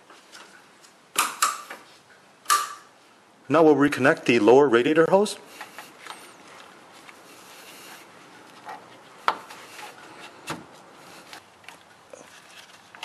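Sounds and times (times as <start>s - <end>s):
rubber hose rubbing: 5.5s - 11.5s.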